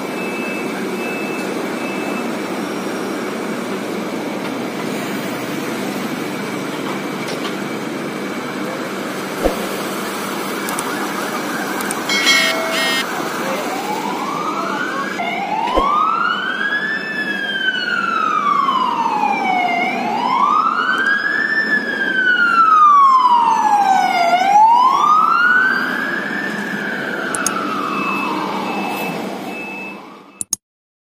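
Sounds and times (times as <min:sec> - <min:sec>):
road noise: 0:00.0 - 0:30.4
ambulance siren wailing: 0:09.9 - 0:30.4.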